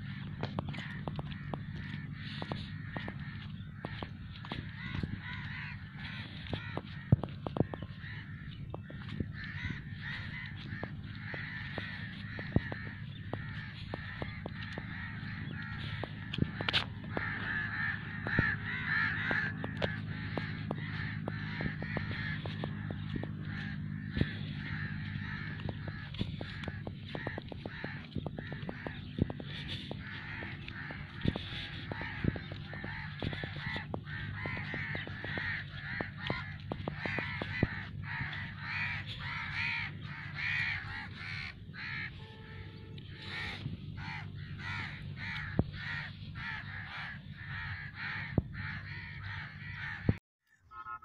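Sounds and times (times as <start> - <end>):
steady low hum: 0.0 - 50.2
flock of birds calling: 0.0 - 51.0.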